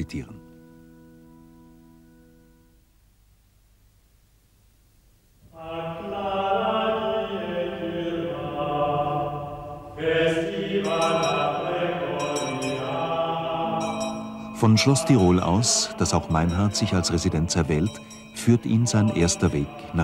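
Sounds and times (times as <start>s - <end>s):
slow chanting voices: 5.4s - 20.0s.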